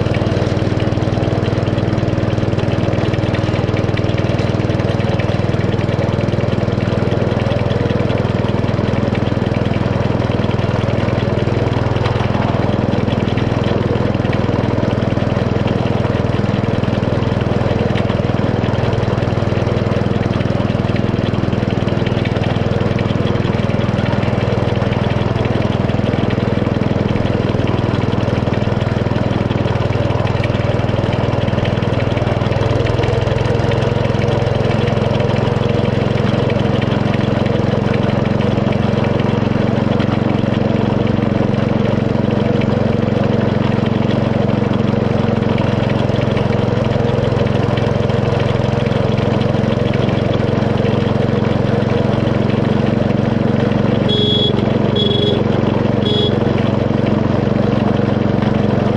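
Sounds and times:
miniature locomotive engine running: 0:00.0 - 0:58.9.

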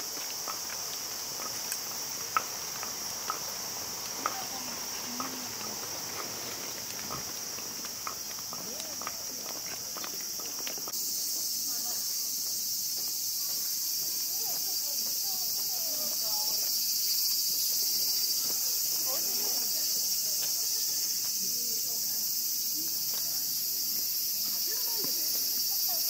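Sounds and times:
footsteps: 0:00.0 - 0:21.4
insects chorus: 0:00.0 - 0:26.0
faint voices: 0:04.1 - 0:12.4.

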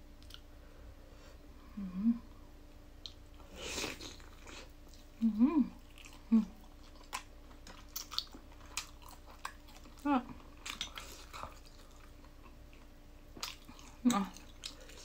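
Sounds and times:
person humming mm: 0:01.6 - 0:02.3, 0:05.2 - 0:06.6
person chewing with mouth clicks: 0:03.0 - 0:15.0.

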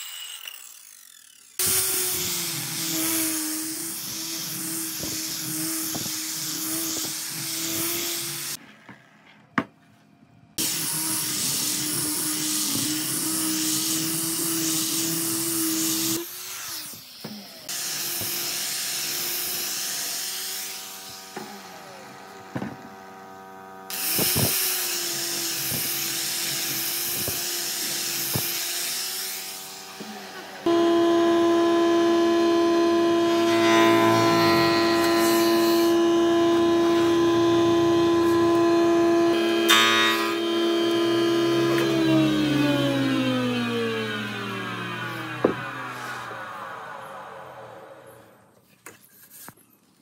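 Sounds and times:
power tool whining on wood: 0:00.0 - 0:08.6, 0:10.6 - 0:48.4.

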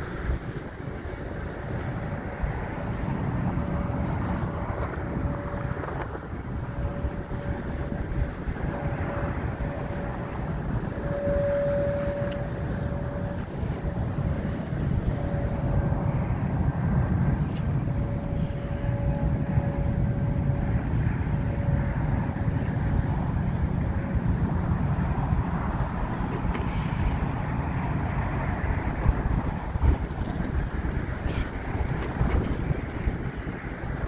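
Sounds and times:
thin steady tone: 0:00.0 - 0:24.8
distant train rumbling on bridge: 0:00.0 - 0:34.0.

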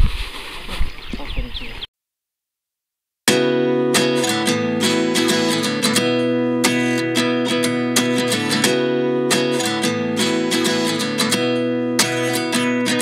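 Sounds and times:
strummed acoustic guitar: 0:03.3 - 0:13.0.

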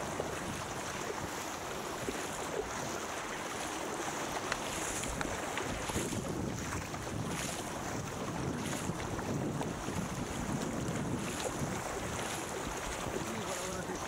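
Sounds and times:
water rushing and splashing: 0:00.0 - 0:14.0
wind buffeting microphone: 0:00.0 - 0:14.0.

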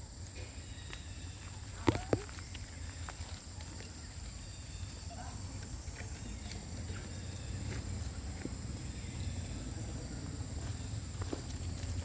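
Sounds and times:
rustling in dry leaves: 0:00.0 - 0:12.0.

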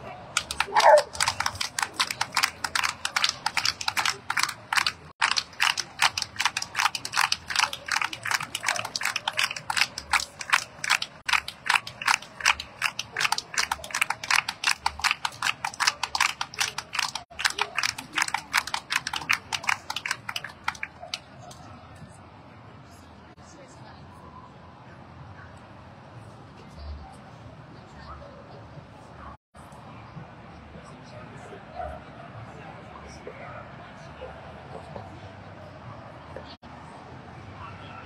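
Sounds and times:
fast rhythmic hand clapping: 0:00.4 - 0:21.6.

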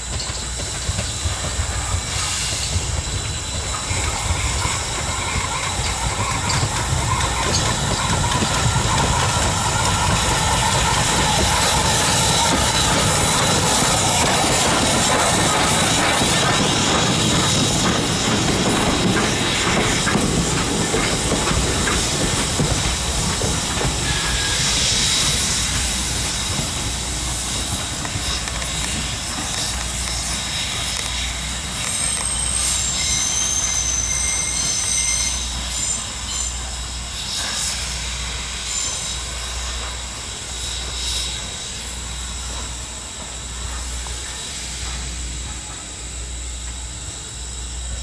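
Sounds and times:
train wheels clattering on rails: 0:00.0 - 0:48.0
high-pitched wheel squeals: 0:31.9 - 0:36.7.

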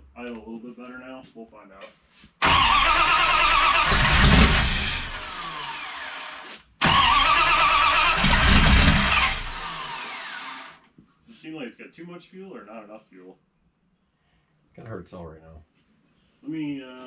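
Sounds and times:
loud engine revving and stumbling: 0:02.4 - 0:10.6.

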